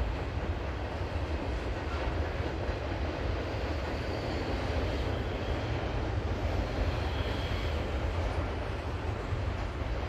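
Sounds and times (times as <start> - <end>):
diesel locomotive engine rumble: 0.0 - 10.0
freight train wheels rolling on rails: 0.0 - 10.0.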